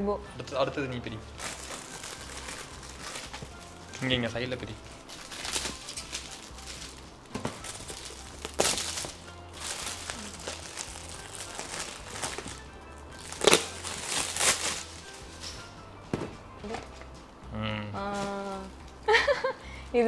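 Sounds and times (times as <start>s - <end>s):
foil gift wrap crinkling and tearing: 1.4s - 15.7s.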